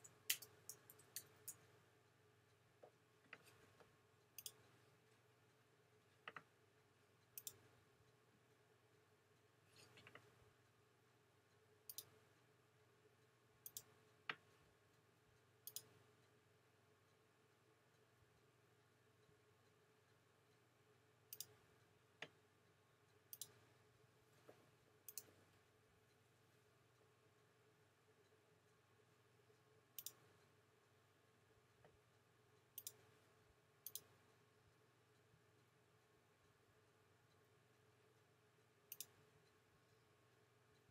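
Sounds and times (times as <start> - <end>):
computer mouse clicking: 0.0 - 1.6, 4.4 - 4.8, 7.3 - 7.7, 11.8 - 12.2, 13.6 - 14.5, 15.6 - 16.0, 21.3 - 21.6, 23.3 - 23.6, 25.0 - 25.4, 30.0 - 30.3, 32.7 - 33.1, 33.8 - 34.2, 38.9 - 39.2
faint steady hum: 0.0 - 40.9.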